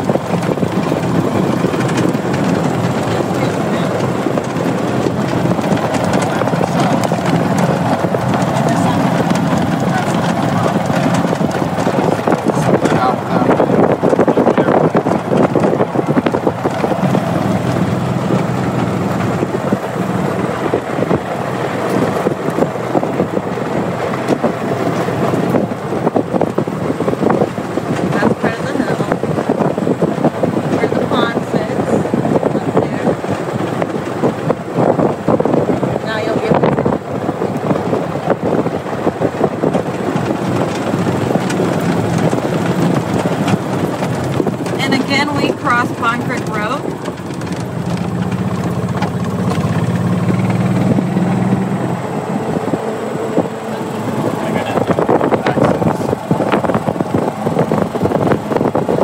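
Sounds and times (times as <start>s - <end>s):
cart wheels crunching on gravel: 0.0s - 59.0s
vehicle engine and road noise: 0.0s - 59.0s
wind on microphone: 0.0s - 59.0s.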